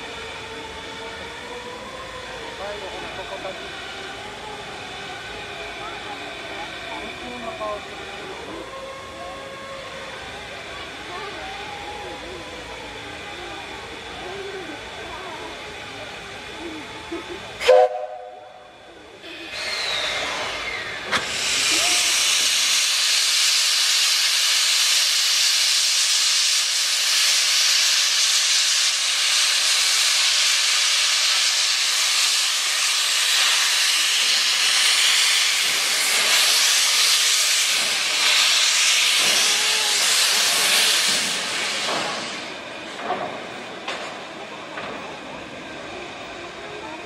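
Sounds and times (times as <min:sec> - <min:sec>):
steam locomotive hissing steam: 0:00.0 - 0:47.0.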